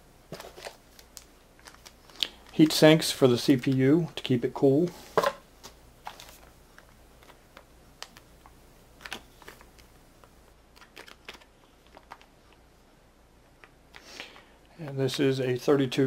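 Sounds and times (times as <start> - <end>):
packets clicking and crinkling: 0.3 - 2.7, 5.6 - 12.6.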